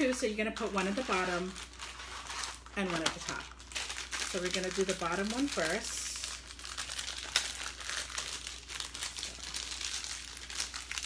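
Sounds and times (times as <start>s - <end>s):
plastic wrapper crinkling: 0.0s - 11.0s.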